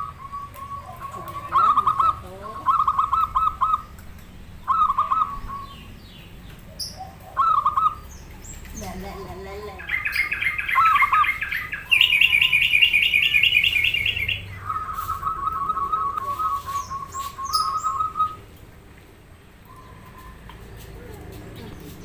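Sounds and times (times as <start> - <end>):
bird repeated lower notes: 0.0 - 4.0, 9.8 - 18.5
bird chirping trills: 0.0 - 22.0.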